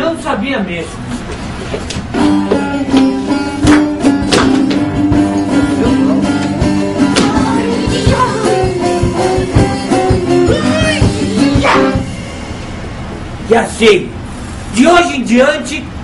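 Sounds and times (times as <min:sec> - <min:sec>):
guitar music: 0:02.1 - 0:13.4
person singing: 0:05.6 - 0:12.1.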